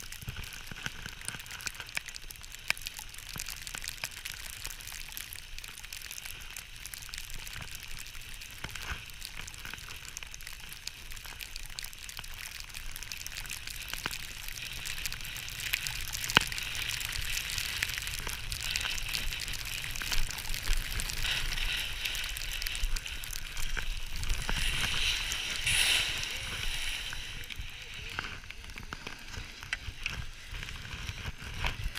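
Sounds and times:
skis scraping over snow: 13.0s - 31.9s.

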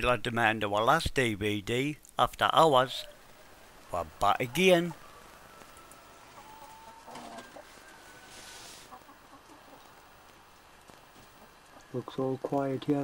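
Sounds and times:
chickens clucking: 6.3s - 7.9s, 8.6s - 10.1s
brief hiss: 8.3s - 9.0s.

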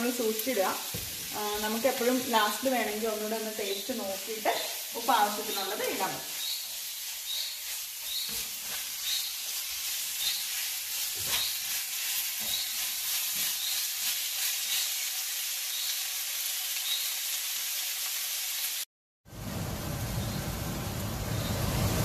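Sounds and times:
food sizzling in hot oil: 0.0s - 18.9s
spatula scraping and knocking pan: 5.4s - 14.6s.

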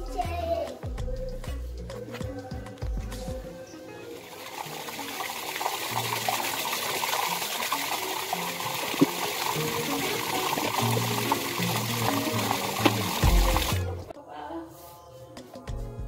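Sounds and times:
water gushing into plastic bottle: 4.2s - 14.0s.

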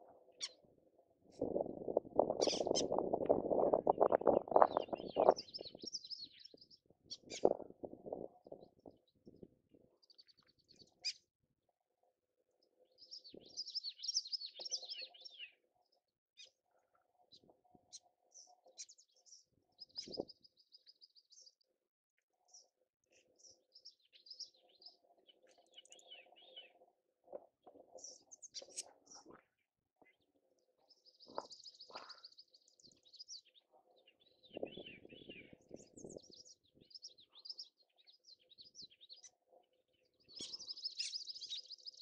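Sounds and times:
songbirds chirping and twittering: 0.0s - 42.0s.

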